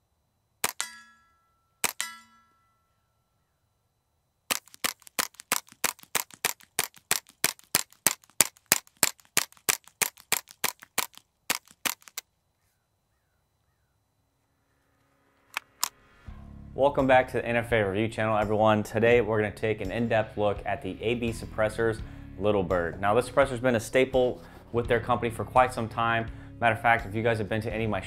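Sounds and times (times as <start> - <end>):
metallic ring after shots: 0.6 - 2.9.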